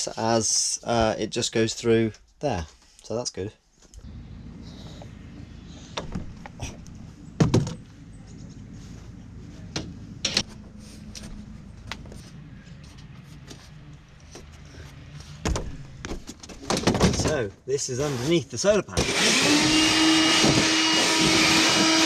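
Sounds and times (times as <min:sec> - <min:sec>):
steady low hum: 0:03.9 - 0:17.0
cordless driver: 0:19.0 - 0:22.0.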